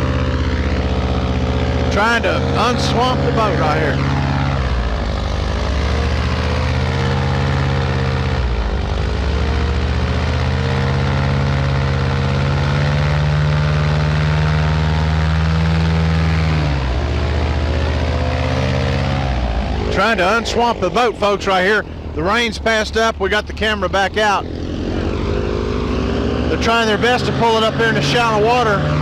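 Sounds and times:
airboat engine and propeller roaring: 0.0 - 29.0.

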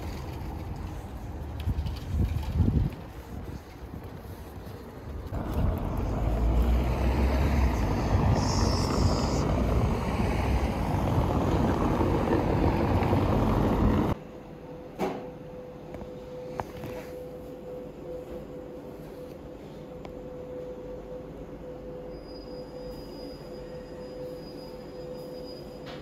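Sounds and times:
wind rumbling on microphone: 0.0 - 14.2
outdoor street noise: 0.0 - 26.0.

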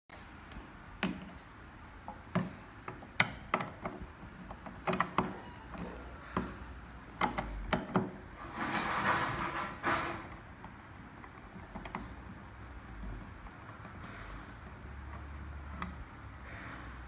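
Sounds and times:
plastic knob clicks and taps: 0.4 - 1.4, 2.1 - 8.2.

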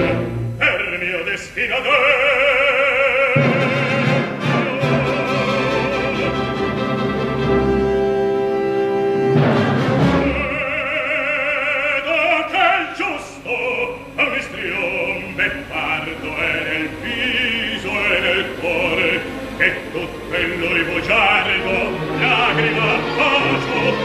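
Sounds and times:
orchestra playing: 0.0 - 0.6, 3.3 - 12.2, 15.1 - 24.0
baritone singing operatically: 0.0 - 7.0, 10.0 - 24.0.

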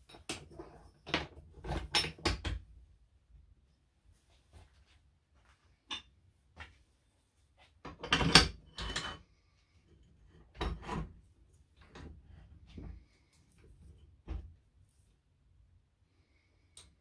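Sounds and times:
metal clunks and scrapes: 10.4 - 11.2.

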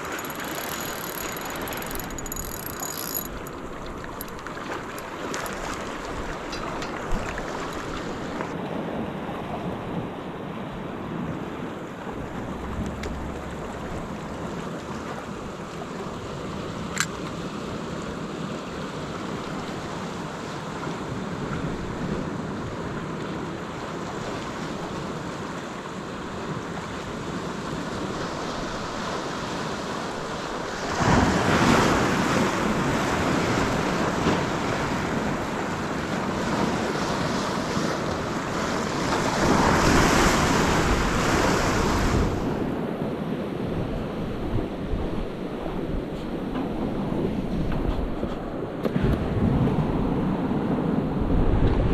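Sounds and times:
surf washing over rocks: 0.0 - 51.9
sharp click: 16.9 - 17.3.

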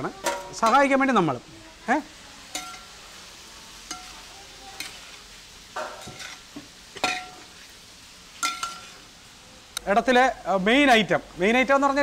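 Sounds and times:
food sizzling: 0.0 - 12.0.

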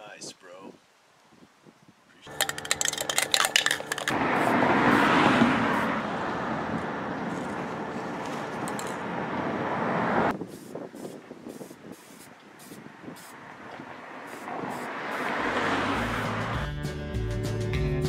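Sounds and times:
spray can ball rattling: 2.3 - 4.5, 7.3 - 9.0
aerosol spray hiss: 10.4 - 13.4.

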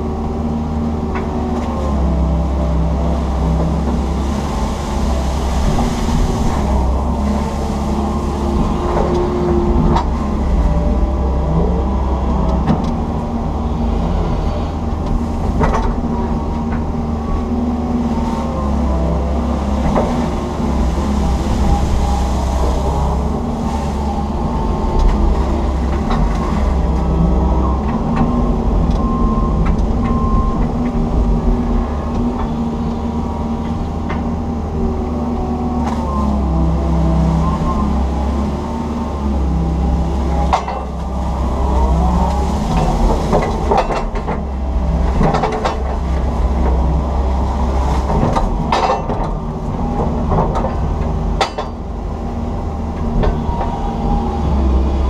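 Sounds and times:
excavator engine and hydraulics: 0.0 - 55.0.

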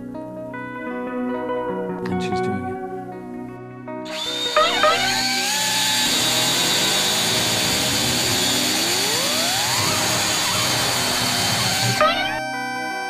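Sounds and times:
cordless drill whining: 4.1 - 13.0
rising tone: 4.1 - 13.0.

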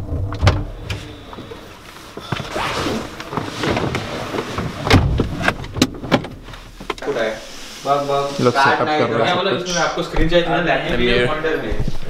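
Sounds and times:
rustling and small knocks: 0.0 - 7.2
loud thump: 4.8 - 6.4.

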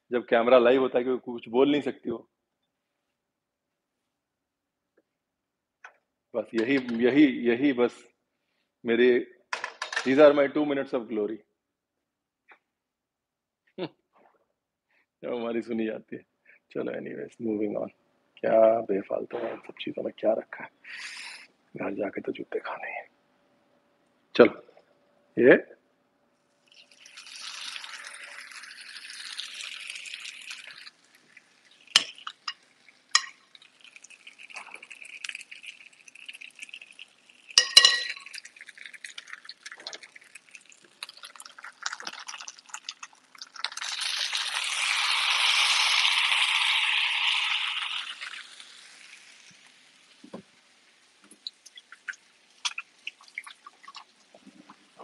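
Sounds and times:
food sizzling on a grill pan: 27.0 - 33.3, 43.7 - 51.2.

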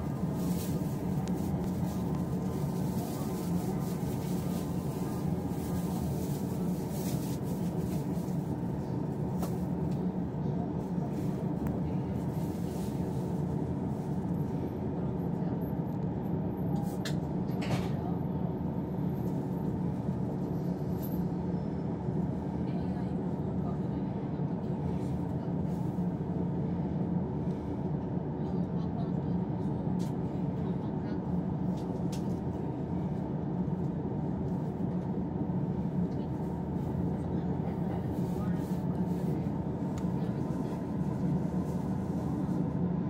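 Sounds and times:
train rumble and hum: 0.0 - 43.0.

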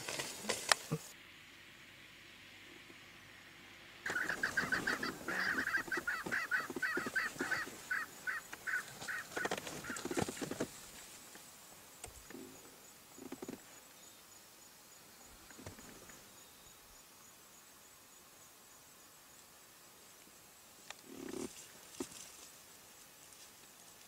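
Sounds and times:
bird calling rapid notes: 4.1 - 10.2.

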